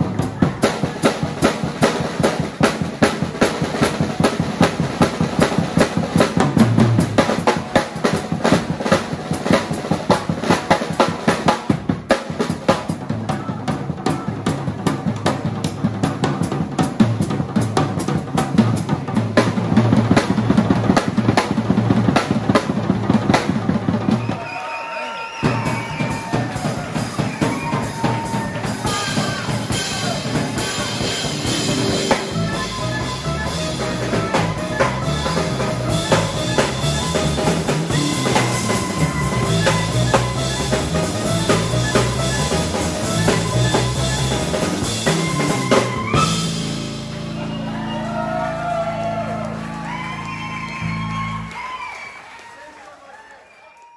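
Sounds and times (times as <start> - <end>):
drum kit: 0.0 - 24.7, 25.3 - 51.8
guitar: 26.6 - 51.5
clarinet melody: 27.5 - 48.5.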